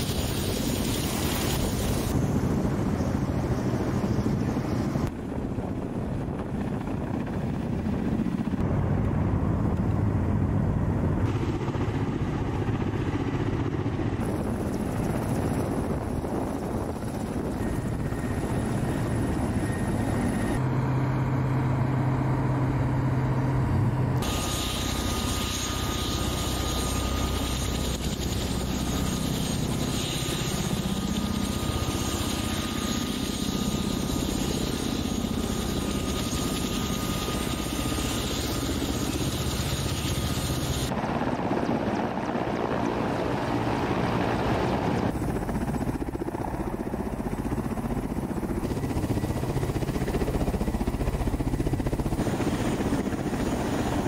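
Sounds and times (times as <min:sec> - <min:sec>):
helicopter rotors and engines: 0:00.0 - 0:54.0
faint steady whine: 0:14.2 - 0:54.0.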